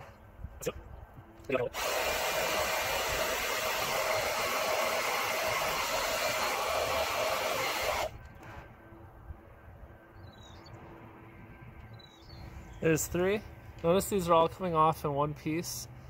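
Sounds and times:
hair dryer blowing: 0:01.7 - 0:08.1.

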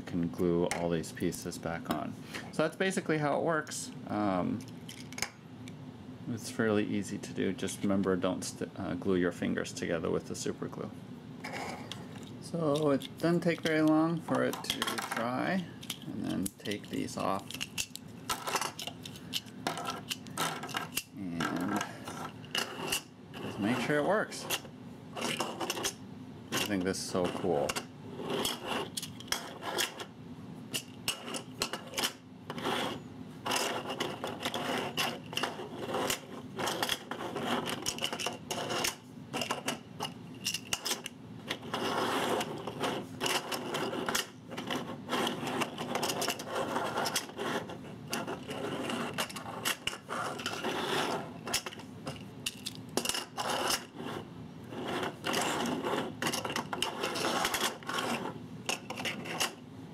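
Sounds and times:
tiles scraping on wooden table: 0:11.4 - 0:12.1, 0:17.5 - 0:26.0, 0:26.6 - 0:30.1, 0:30.8 - 0:52.2, 0:53.0 - 0:59.6
plastic tiles clicking and clacking: 0:14.4 - 0:15.2, 0:40.4 - 0:41.1.

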